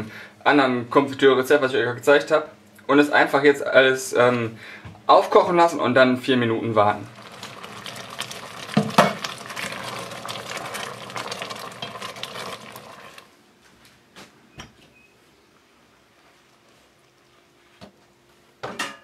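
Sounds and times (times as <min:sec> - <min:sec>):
jam bubbling and spattering: 0:07.0 - 0:13.3
spoon stirring pot: 0:07.2 - 0:13.3
knocks on pot: 0:08.8 - 0:09.2.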